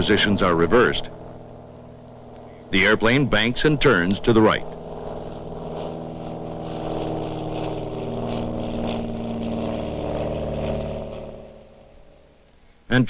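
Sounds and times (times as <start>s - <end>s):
propeller plane engine in flight: 0.0s - 13.0s.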